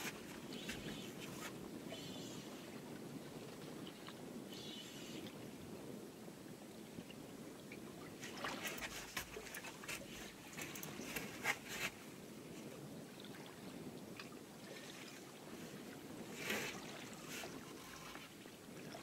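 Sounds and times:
water slapping against boat: 8.1 - 12.0.

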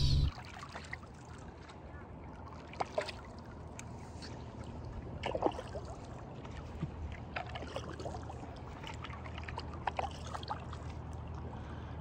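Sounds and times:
low steady rumble: 0.0 - 0.3
water lapping against board: 0.4 - 11.8
small splashes: 2.4 - 11.4.

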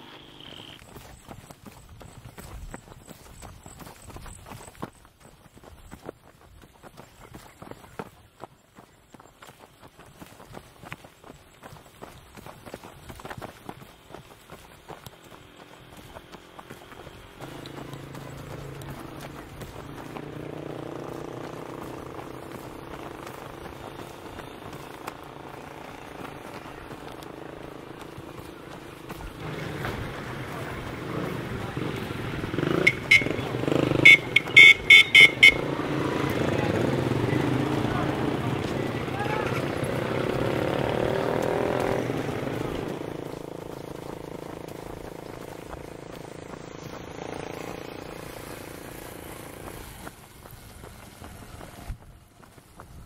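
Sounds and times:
short high-pitched horn beeps: 0.0 - 0.8, 32.6 - 35.8
traffic engines humming: 0.0 - 4.8, 7.0 - 53.0
footsteps on dirt path: 0.0 - 53.0.

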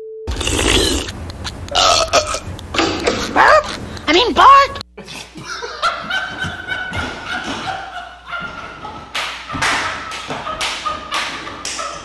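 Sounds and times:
men laughing hysterically: 5.2 - 12.0.

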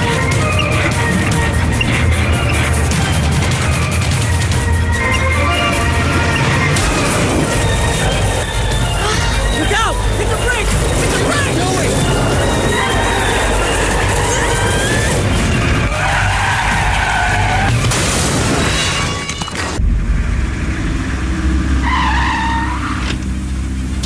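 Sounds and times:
tires squealing: 0.0 - 9.8, 10.4 - 17.9, 21.5 - 23.4
background music: 0.0 - 24.0.

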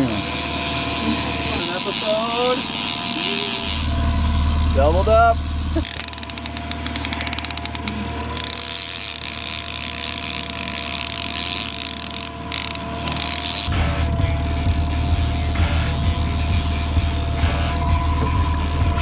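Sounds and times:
fishing reel ratcheting clicks: 0.0 - 4.1, 5.8 - 13.7
fishing reel whirring: 0.0 - 19.0.

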